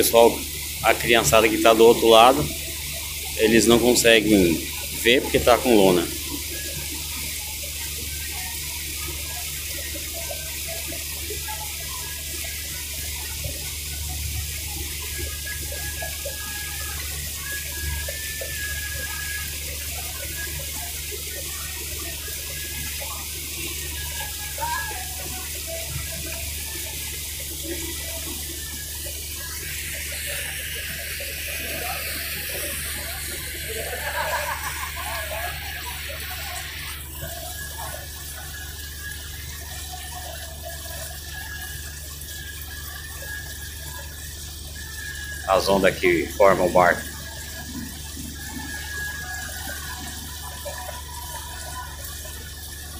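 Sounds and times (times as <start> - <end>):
boat engine droning: 0.0 - 52.9
water rushing along hull: 0.0 - 52.9
faint voices: 44.7 - 52.9.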